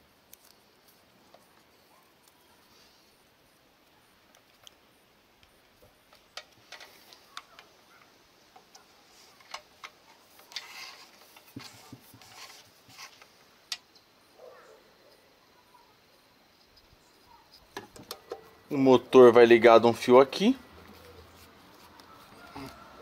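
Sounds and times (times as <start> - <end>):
hand tools clicking on cable: 6.1 - 13.9.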